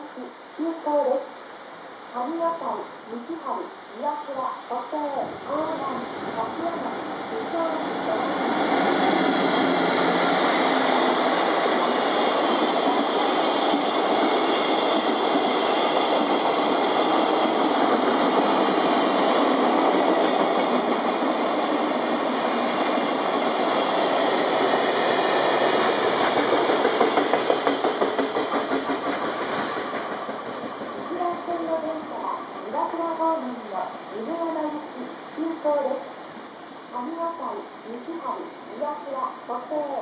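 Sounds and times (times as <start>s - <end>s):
freight train wheels rumbling: 5.2s - 34.8s
wheels clacking over rail joints: 8.6s - 32.6s.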